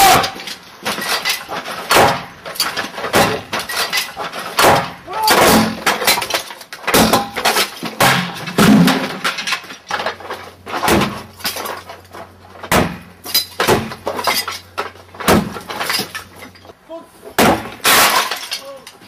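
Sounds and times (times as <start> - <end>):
fragments clattering down: 0.0 - 16.8, 17.4 - 19.0
concrete cracking: 17.4 - 19.0.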